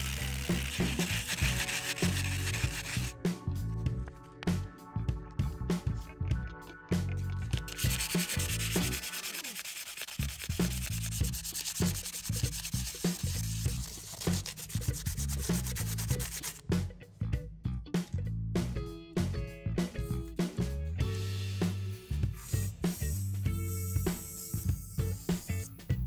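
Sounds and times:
sandpaper scratching on plastic: 0.0s - 3.1s, 7.6s - 16.6s.

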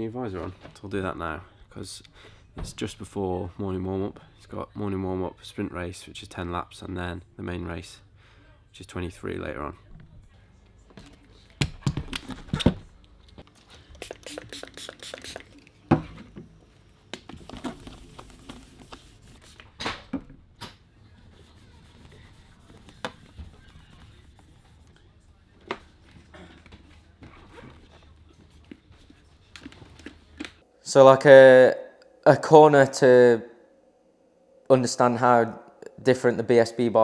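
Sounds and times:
cloth rubbing on helmet shell: 17.4s - 19.6s, 21.2s - 24.9s.

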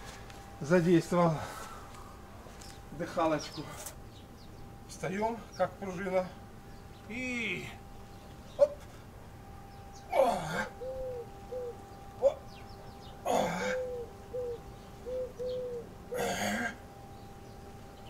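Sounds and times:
soft cooing notes: 9.7s - 17.7s.

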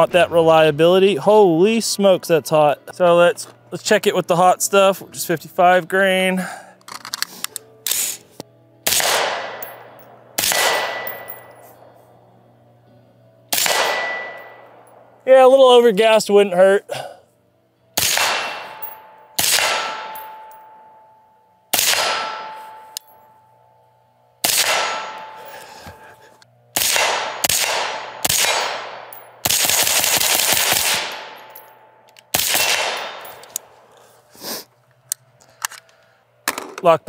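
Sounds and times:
suppressed rifle shots: 8.8s - 11.5s, 13.5s - 15.0s, 18.0s - 20.4s, 21.7s - 22.8s, 24.4s - 25.4s, 26.8s - 31.5s, 32.3s - 33.7s.

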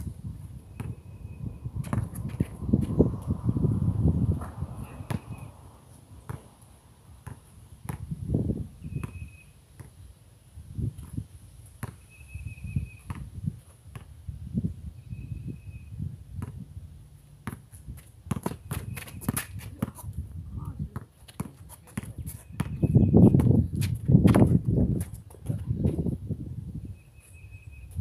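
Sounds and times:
basketball bouncing: 0.8s - 1.0s, 1.8s - 3.0s, 4.4s - 5.5s, 6.3s - 6.5s, 7.2s - 8.2s, 8.9s - 9.2s, 11.8s - 12.0s, 13.1s - 14.1s, 16.4s - 16.6s, 17.4s - 20.0s, 20.9s - 24.7s
footsteps on concrete: 1.8s - 3.3s, 20.9s - 26.1s.

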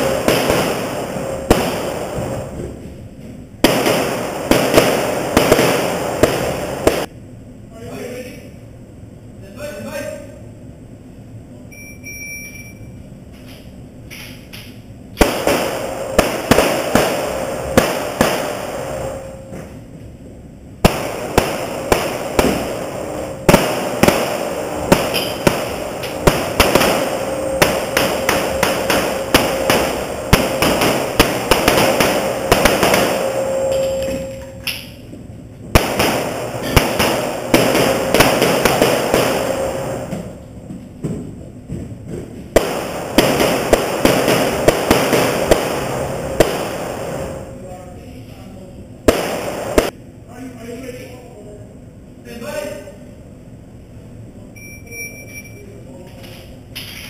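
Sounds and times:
rapid pistol shots echoing indoors: 0.0s - 2.6s, 3.6s - 7.1s, 14.1s - 19.5s, 20.8s - 35.0s, 35.7s - 40.4s, 42.5s - 47.5s, 49.0s - 50.0s.

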